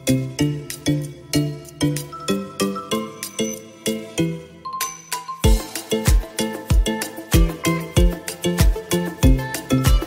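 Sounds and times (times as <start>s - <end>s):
music with deep bass beat: 5.4s - 10.0s.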